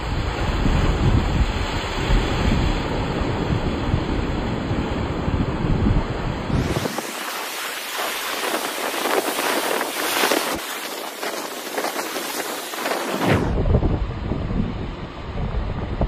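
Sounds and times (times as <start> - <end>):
rough surf breaking on rocks: 0.0 - 13.6.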